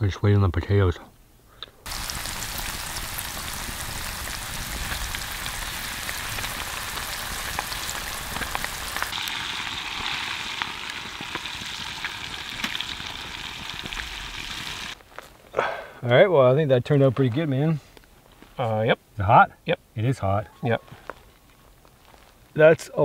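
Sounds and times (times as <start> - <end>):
fries sizzling in hot fat: 1.9 - 15.0.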